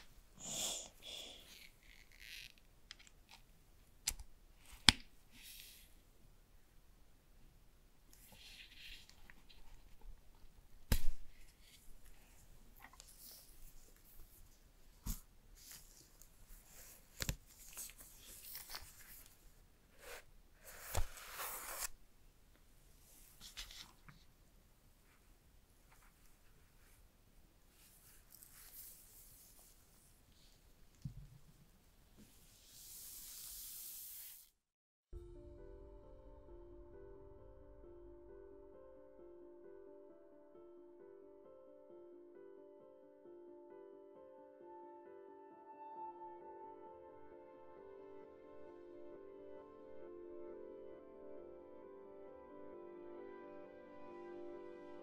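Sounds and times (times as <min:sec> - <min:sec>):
paper rustling: 0:08.2 - 0:10.5, 0:11.3 - 0:22.0, 0:23.3 - 0:24.3
paper rustling and crinkling: 0:15.0 - 0:22.0.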